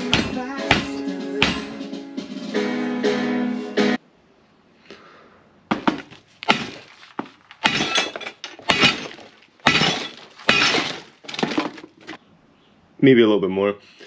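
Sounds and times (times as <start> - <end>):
fibreglass part being smashed: 5.7 - 12.1.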